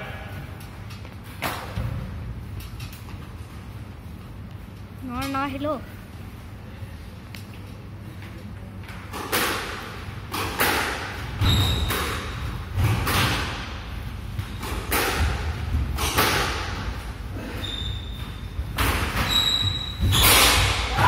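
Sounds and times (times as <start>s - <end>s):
shoe squeak: 11.4s - 12.1s, 17.4s - 18.6s, 19.2s - 20.7s
squash ball cracking off rackets: 14.4s - 16.8s.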